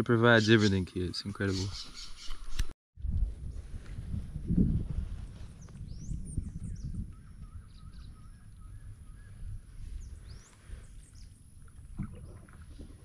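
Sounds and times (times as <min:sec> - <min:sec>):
birds calling: 0:00.1 - 0:02.7, 0:05.9 - 0:11.5.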